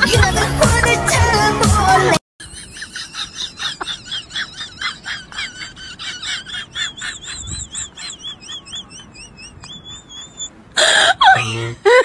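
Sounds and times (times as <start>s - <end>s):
rapid high-pitched chirping: 6.8s - 10.5s.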